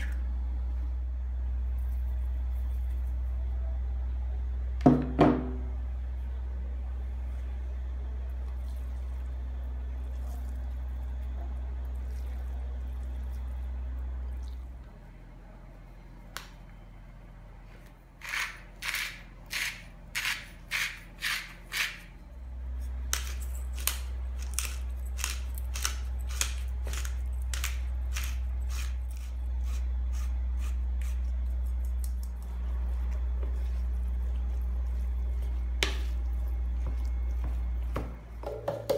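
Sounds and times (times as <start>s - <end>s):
low hum: 0.0s - 38.9s
spice grinder rasping: 18.2s - 22.1s, 23.1s - 31.2s.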